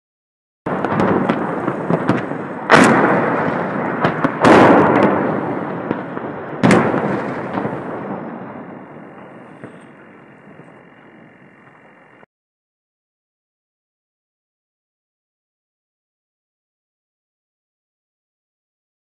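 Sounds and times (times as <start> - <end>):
big explosion blasts echoing: 0.7 - 12.2
sharp explosive cracks: 0.7 - 12.2
continuous rumble: 8.7 - 12.2.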